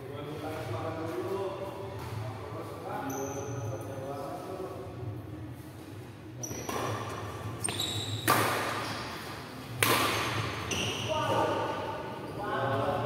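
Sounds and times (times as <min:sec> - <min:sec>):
shoes squeaking on court: 0:03.0 - 0:03.8, 0:05.8 - 0:09.3, 0:10.3 - 0:11.4
racket hitting shuttlecock: 0:06.6 - 0:09.2, 0:09.8 - 0:10.9.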